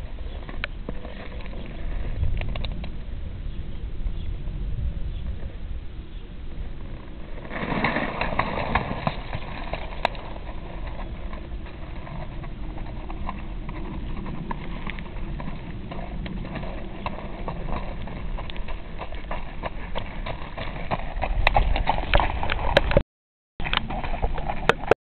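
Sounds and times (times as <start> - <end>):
hoofbeats on gravel: 7.4 - 22.9, 23.6 - 24.9.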